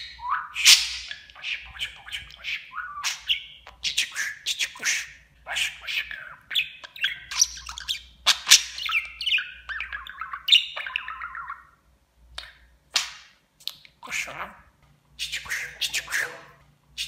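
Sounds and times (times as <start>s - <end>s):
budgerigar chattering: 0.2s - 11.8s.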